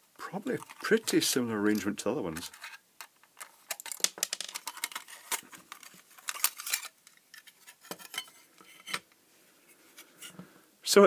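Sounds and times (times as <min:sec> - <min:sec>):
metallic clicks and scrapes: 0:01.7 - 0:09.0.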